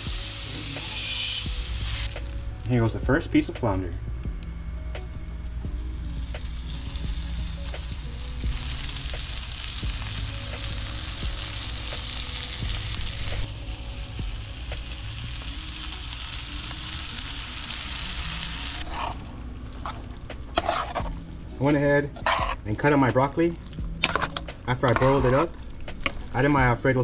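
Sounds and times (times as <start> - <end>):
fish fillets sizzling in butter: 0.0 - 2.2, 5.8 - 18.8.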